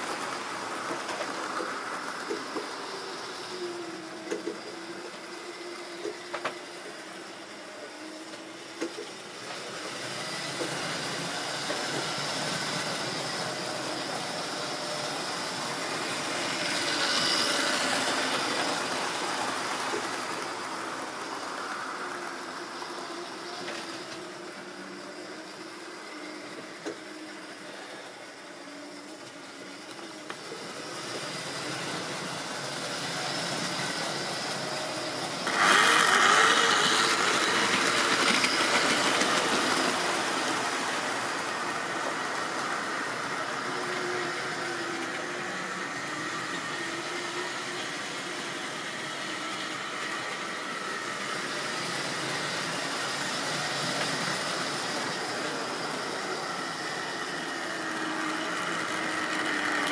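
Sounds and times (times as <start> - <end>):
whirr of small electric motors: 0.0 - 59.9
wheels clicking over rail joints: 29.0 - 45.6, 51.1 - 59.9.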